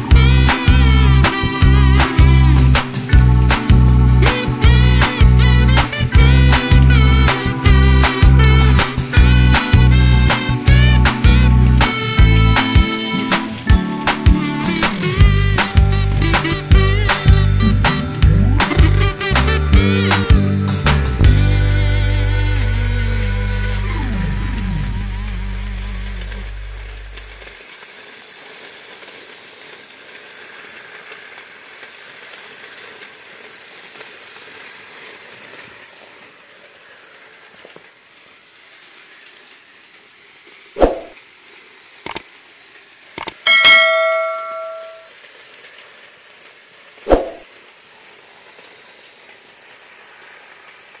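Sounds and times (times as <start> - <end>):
faint steady hiss: 20.5 - 51.0
toy cars and plastic track clacking: 27.2 - 40.6, 41.6 - 47.0
short metallic ring: 43.5 - 45.1.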